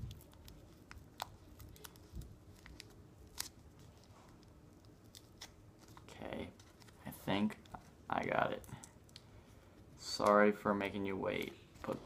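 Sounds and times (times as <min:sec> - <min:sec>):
sticker packet crinkling: 0:00.0 - 0:09.2.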